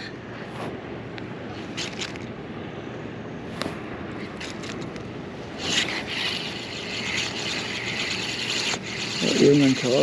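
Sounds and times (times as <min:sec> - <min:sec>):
low background noise: 0:00.0 - 0:10.0
fishing tackle clicks: 0:01.8 - 0:02.3, 0:04.3 - 0:09.2.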